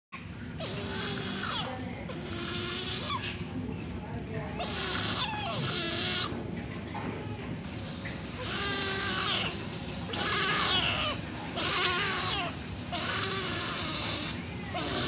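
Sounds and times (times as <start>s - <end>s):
kitten meowing loudly: 4.6s - 6.3s, 10.1s - 15.0s.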